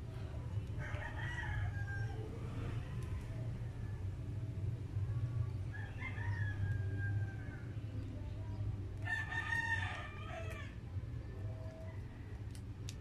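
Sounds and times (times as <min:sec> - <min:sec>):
steady low hum: 0:00.0 - 0:13.0
rooster crowing: 0:05.7 - 0:07.7, 0:09.0 - 0:10.8.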